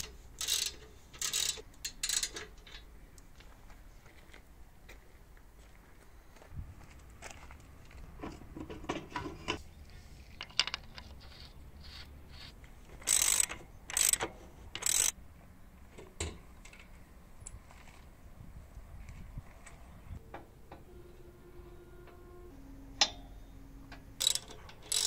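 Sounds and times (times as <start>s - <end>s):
socket ratchet clicking: 0.0s - 2.5s, 13.0s - 15.2s, 24.2s - 25.0s.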